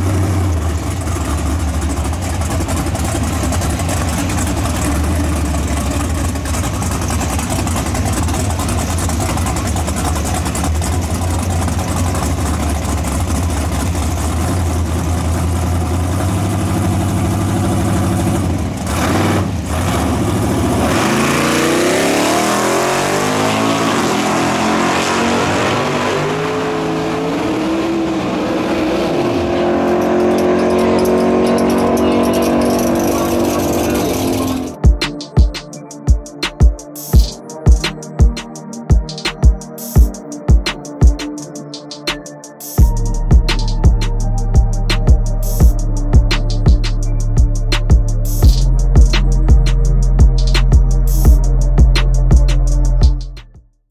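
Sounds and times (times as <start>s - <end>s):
car engines idling with deep rumble: 0.0s - 23.9s, 27.8s - 35.6s, 42.8s - 53.4s
car engines accelerating hard: 0.0s - 35.7s.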